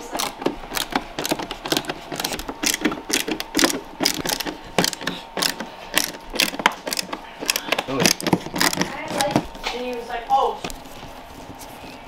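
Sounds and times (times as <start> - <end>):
ratcheting screwdriver clicking: 0.1 - 9.5.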